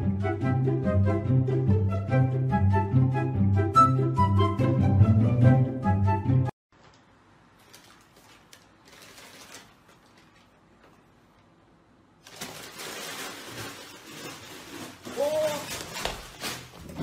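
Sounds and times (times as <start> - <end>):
paper bag crinkling: 7.5 - 11.1, 12.2 - 17.0.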